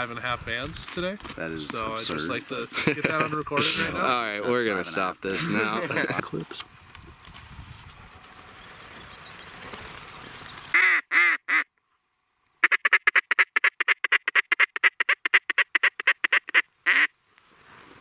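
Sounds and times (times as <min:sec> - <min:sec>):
rustling field noise: 0:00.0 - 0:18.0
duck quacking: 0:10.7 - 0:11.7, 0:12.6 - 0:17.1.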